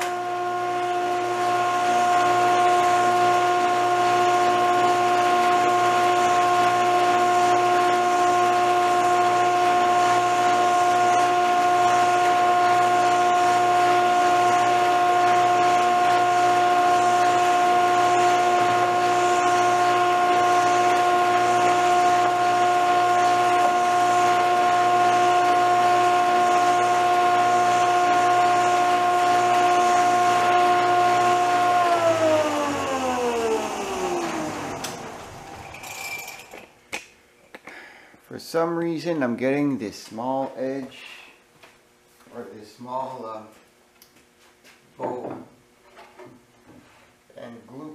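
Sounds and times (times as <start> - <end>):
dust collector blower rushing: 0.0 - 36.5
motor whine: 0.0 - 36.7.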